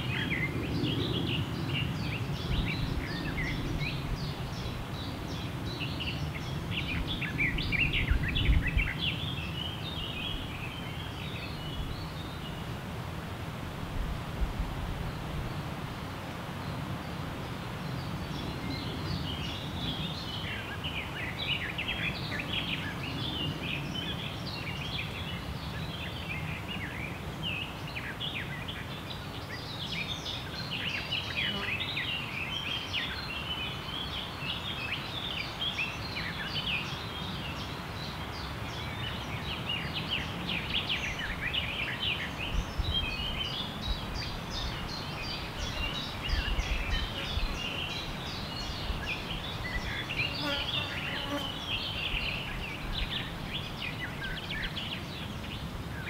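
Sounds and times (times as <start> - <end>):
songbirds chirping: 0.0 - 56.0.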